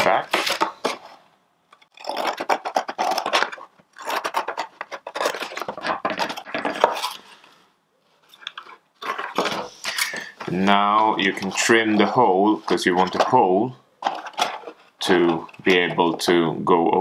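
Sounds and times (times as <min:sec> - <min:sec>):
scissors snipping carton: 0:00.0 - 0:01.1, 0:02.0 - 0:07.2
carton rustling: 0:02.3 - 0:07.4, 0:08.0 - 0:16.5.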